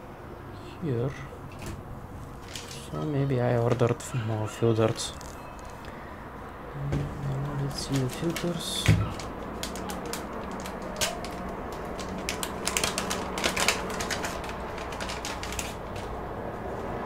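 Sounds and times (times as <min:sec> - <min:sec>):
plastic pouch crinkling: 0:02.3 - 0:02.9, 0:04.9 - 0:05.9, 0:07.3 - 0:16.3.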